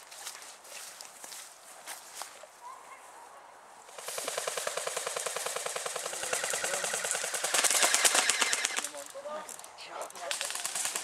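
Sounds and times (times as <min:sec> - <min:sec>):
airsoft gun firing full-auto: 0:04.0 - 0:08.9, 0:10.3 - 0:11.0.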